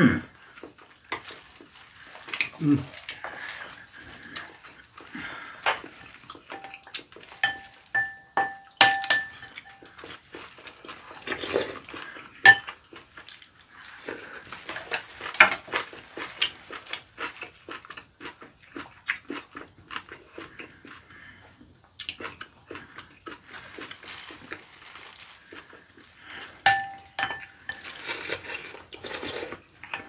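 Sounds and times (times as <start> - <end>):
glass bowl ringing: 7.4 - 9.8, 26.7 - 27.5.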